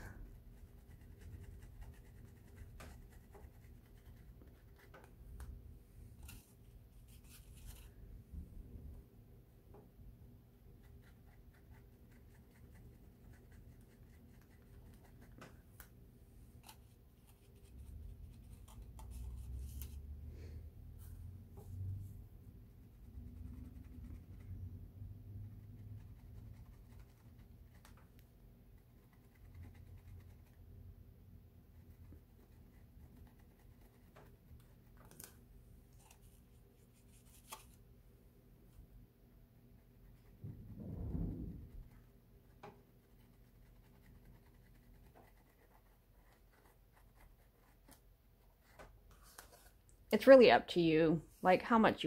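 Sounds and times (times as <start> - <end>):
paintbrush scratching on yarn: 0.0 - 5.2, 6.1 - 8.0, 10.7 - 15.6, 16.5 - 20.1, 22.7 - 30.8, 31.7 - 35.2, 35.9 - 37.8, 42.9 - 49.8
low hum: 38.3 - 42.2
low rumble: 40.4 - 42.0
faint ticks and scratches: 41.8 - 48.0.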